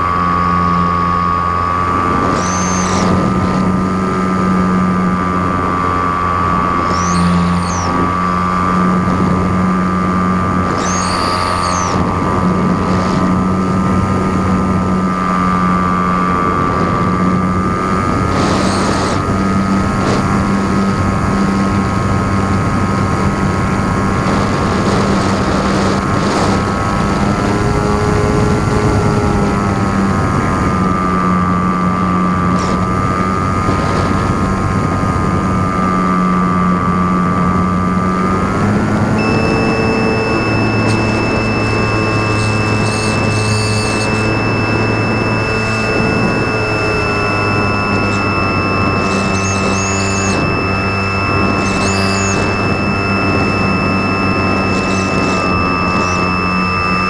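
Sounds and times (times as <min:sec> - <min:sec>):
model airplane motor whine: 0:00.0 - 0:57.0.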